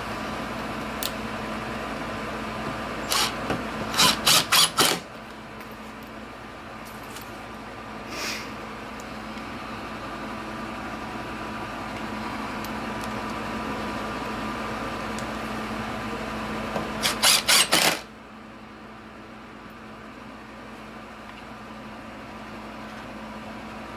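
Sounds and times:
impact driver motor whir: 0:03.0 - 0:05.1, 0:17.0 - 0:18.1
impact driver hammering: 0:03.1 - 0:05.1, 0:16.8 - 0:18.1.

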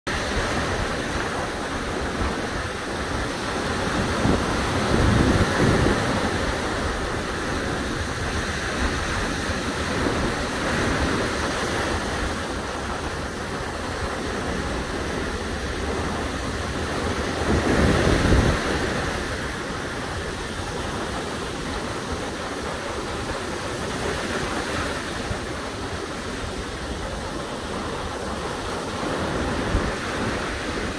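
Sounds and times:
small waves washing up beach: 0:00.1 - 0:30.9
wind rumble on microphone: 0:00.1 - 0:30.9.

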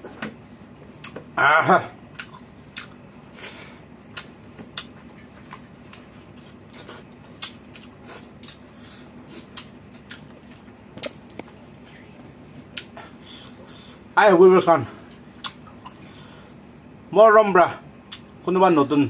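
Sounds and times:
chewing: 0:02.1 - 0:13.8, 0:15.1 - 0:16.3.

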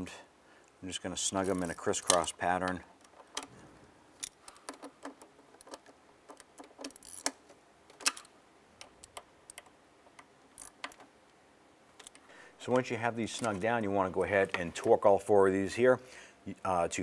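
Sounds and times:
hand ratchet clicking: 0:04.2 - 0:07.4.

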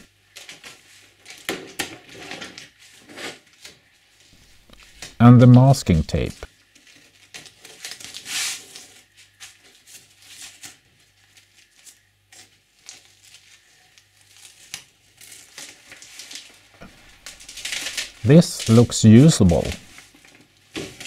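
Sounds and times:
masking tape peeling: 0:14.2 - 0:19.9.

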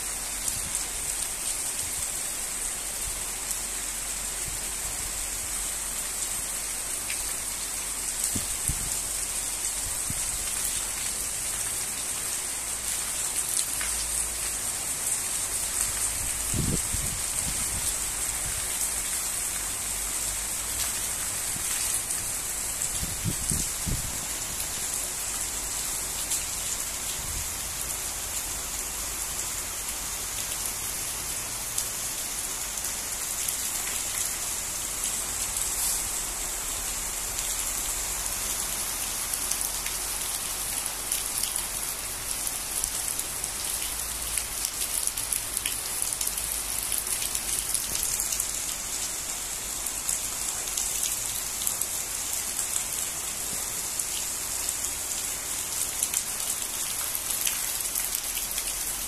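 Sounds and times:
torrential rain: 0:00.0 - 0:59.0.

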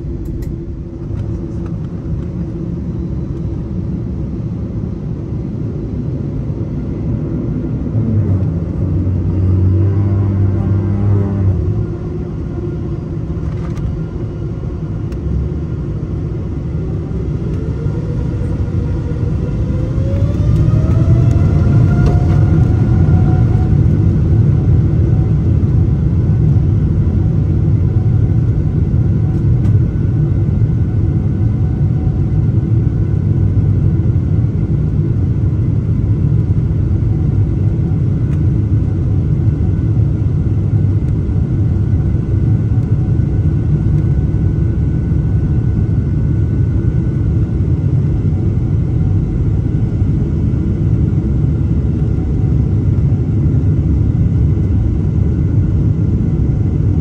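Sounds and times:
jet engine rumble: 0:00.0 - 0:57.0
jet engine whine rising: 0:00.0 - 0:57.0.

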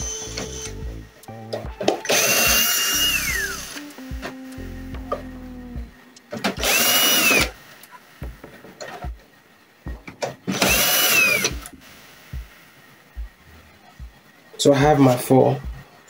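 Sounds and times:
cordless drill whining: 0:00.0 - 0:00.9, 0:02.0 - 0:03.9, 0:06.5 - 0:07.6, 0:10.5 - 0:11.7.

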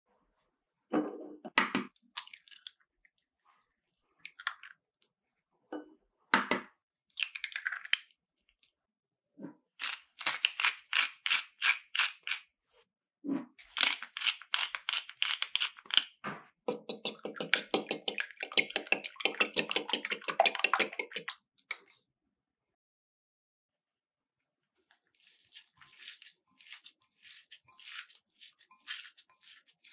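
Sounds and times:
eggs beaten in bowl: 0:13.6 - 0:21.3
eggs cracking against bowl: 0:13.6 - 0:21.3.

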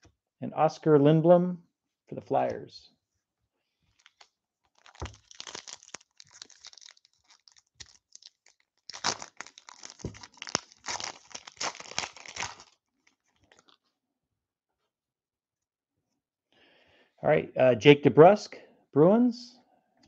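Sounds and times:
wrapper crinkling and tearing: 0:03.9 - 0:13.8.

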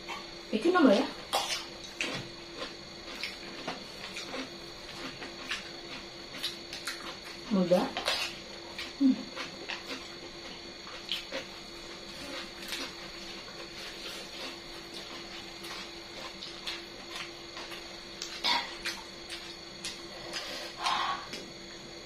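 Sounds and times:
faint steady hum: 0:00.0 - 0:22.0
chewing clicks and smacks: 0:01.3 - 0:07.4, 0:14.0 - 0:20.5.

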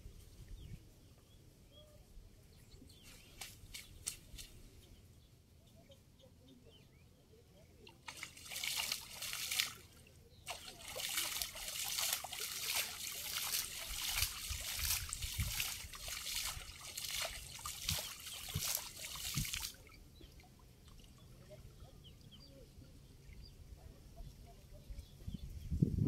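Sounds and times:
small splashes: 0:03.0 - 0:04.7, 0:07.8 - 0:22.4
water trickling and dripping: 0:07.8 - 0:22.4.

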